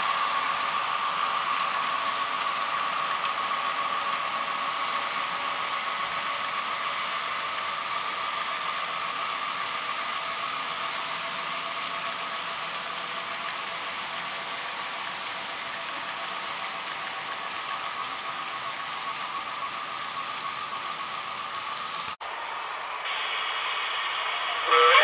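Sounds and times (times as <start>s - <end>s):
model train wheels rattling on rails: 0.0s - 22.2s.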